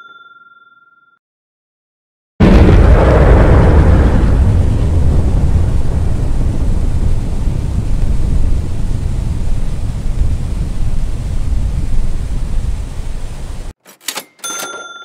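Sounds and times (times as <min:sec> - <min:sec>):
explosion rumble: 0:02.4 - 0:13.7.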